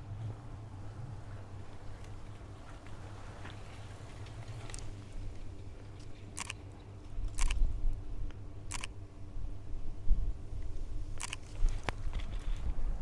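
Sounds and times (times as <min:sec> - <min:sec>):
camera shutter clicking: 0:06.4 - 0:06.6, 0:07.3 - 0:07.6, 0:08.7 - 0:08.9, 0:11.2 - 0:11.6.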